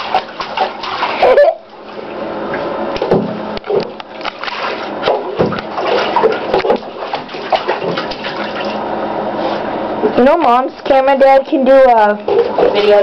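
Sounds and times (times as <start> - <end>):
baby splashing bathwater: 0.0 - 2.7, 3.6 - 9.6, 12.2 - 13.0
water noise: 0.0 - 13.0.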